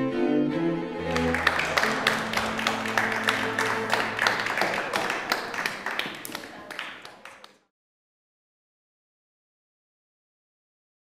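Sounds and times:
string music: 0.0 - 6.9
audience applauding: 1.0 - 7.7.

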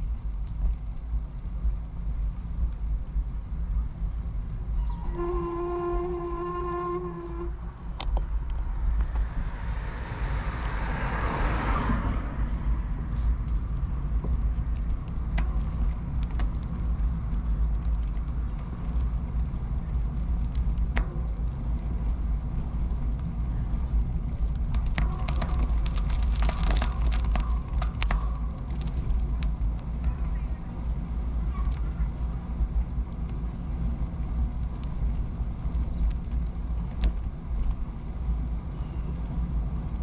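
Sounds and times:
bicycle tyre noise: 0.0 - 40.0
wind rumble on microphone: 0.0 - 40.0
car passing: 4.1 - 14.6
sharp clicks and rattles: 13.1 - 37.8.

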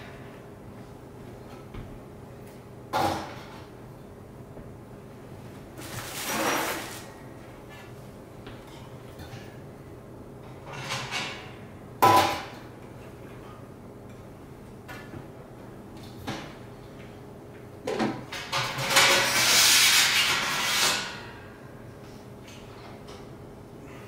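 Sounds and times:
metal parts rustling and scraping: 5.8 - 7.1.

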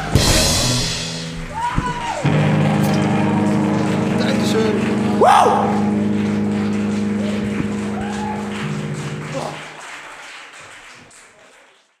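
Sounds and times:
audience applause and cheering: 0.0 - 12.0
guitar and bass chord ringing: 2.2 - 9.7.

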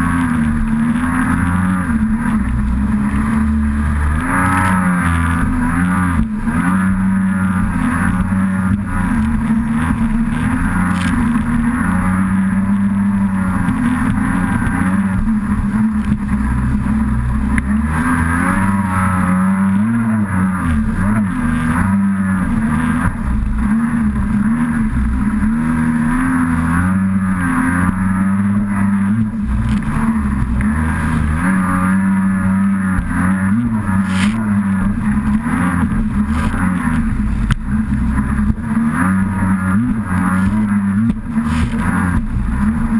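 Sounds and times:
jet ski engine running hard: 0.0 - 42.9
water rushing and spraying: 28.1 - 42.7.

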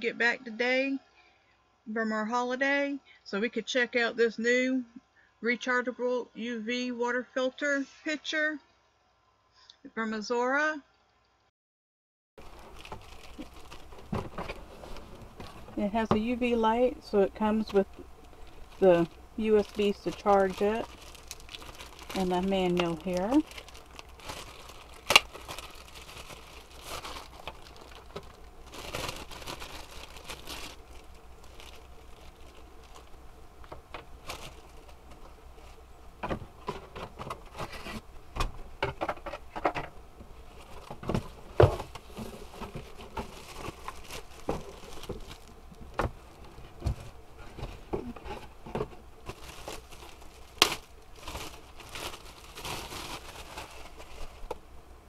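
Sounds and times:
plastic bags crinkling: 12.4 - 35.9, 40.4 - 54.6.

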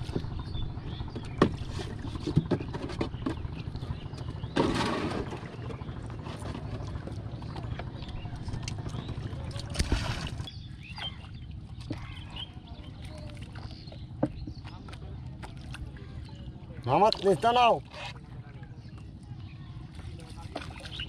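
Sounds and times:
wind rumbling on microphone: 0.0 - 10.9
water lapping around boat: 0.0 - 21.0.

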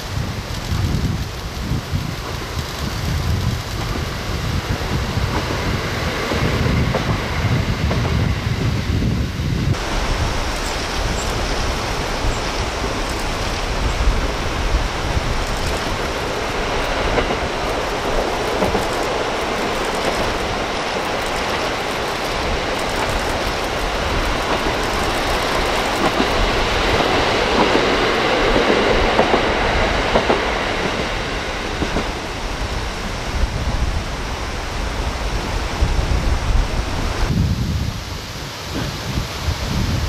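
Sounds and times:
diesel train passing: 0.0 - 40.0
wheels clattering on rails: 9.7 - 32.3.

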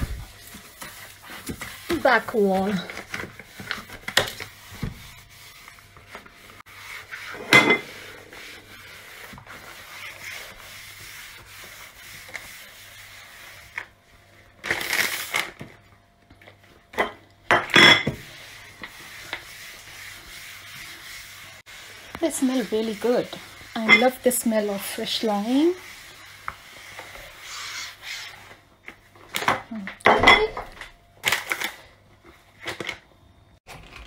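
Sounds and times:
wipe rubbing countertop: 0.0 - 13.9, 18.2 - 28.6.

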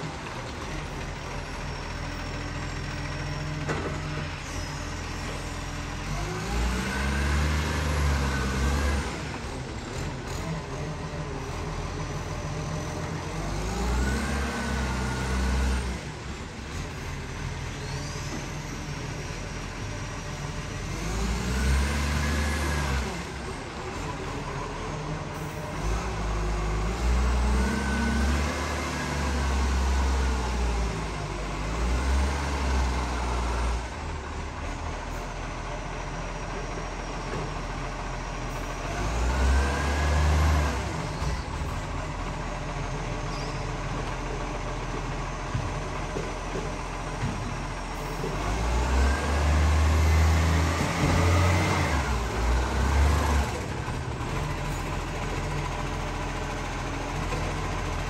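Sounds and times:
garbage truck diesel engine revving: 0.0 - 58.0.

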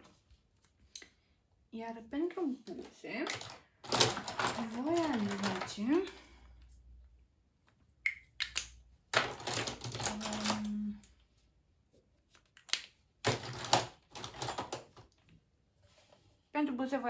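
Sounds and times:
plastic packaging clicking and clattering: 2.8 - 6.2, 9.1 - 10.9, 12.6 - 15.2
person humming: 10.1 - 11.1.

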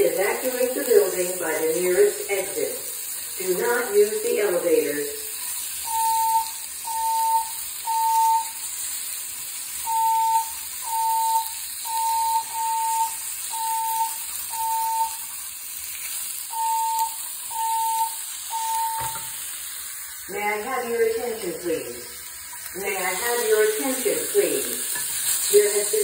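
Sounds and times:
fire alarm beeping: 3.4 - 8.7, 9.8 - 15.4, 16.4 - 19.4, 22.8 - 24.9.

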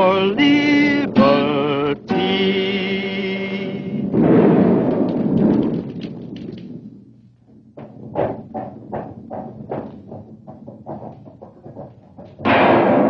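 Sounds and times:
low rumbling crash: 3.5 - 10.8.

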